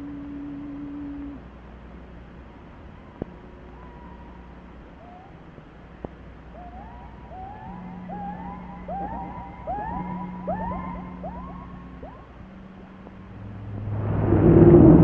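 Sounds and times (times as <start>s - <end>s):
steady low hum: 0.0s - 15.0s
swooping rising tones: 7.4s - 15.0s.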